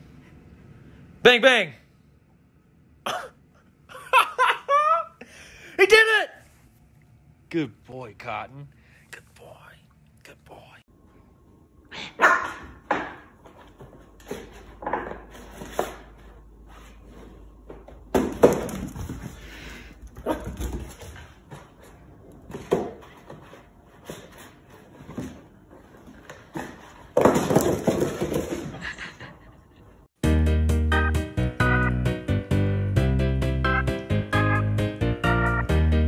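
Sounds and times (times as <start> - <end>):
puppy yapping: 12.0 - 12.8.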